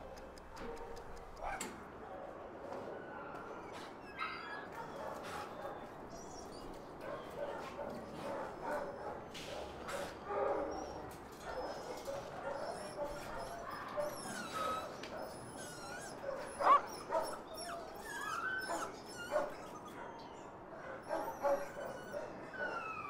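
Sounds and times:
dogs barking: 0.0 - 2.4, 4.6 - 6.0, 7.0 - 15.4, 16.1 - 17.9, 20.8 - 22.8.

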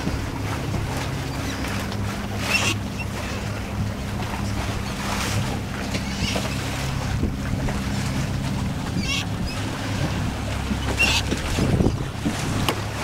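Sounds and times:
water slapping along hull: 0.0 - 13.0
wind buffeting microphone: 0.0 - 13.0
brief high squeaks: 2.4 - 3.1.

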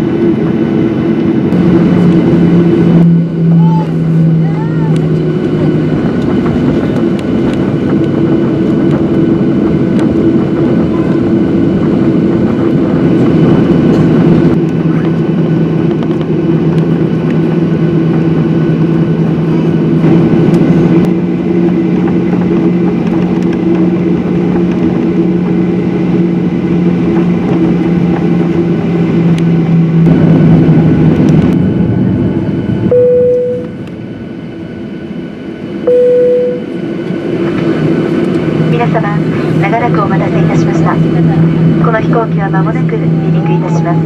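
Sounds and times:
aircraft cabin engine drone: 0.0 - 44.0
short single-pitch tones: 32.9 - 33.8, 35.8 - 36.8.

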